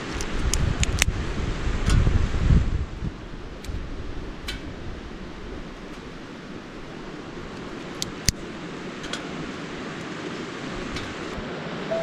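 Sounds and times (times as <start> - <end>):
river flowing over stones: 5.0 - 12.0.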